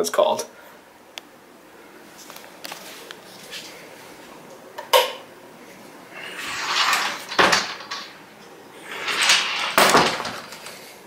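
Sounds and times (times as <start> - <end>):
closet doors swishing: 6.1 - 8.2, 8.8 - 10.8.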